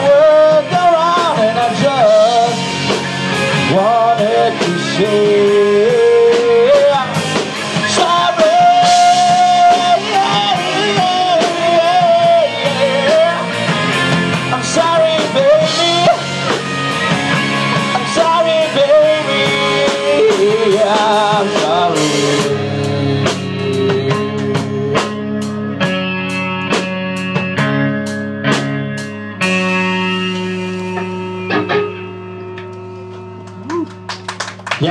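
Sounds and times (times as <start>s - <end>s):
singer holding long notes: 0.0s - 25.6s
rock band playing: 0.0s - 34.9s.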